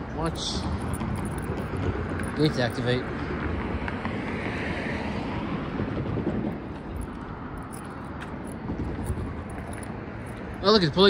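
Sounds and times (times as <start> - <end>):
low outdoor rumble: 0.0 - 4.1
wind noise on microphone: 3.3 - 10.6.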